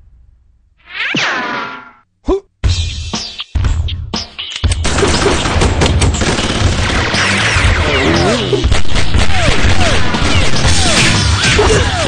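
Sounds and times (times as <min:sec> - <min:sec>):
action music: 0:02.6 - 0:12.0
rapid automatic gunfire: 0:04.8 - 0:12.0.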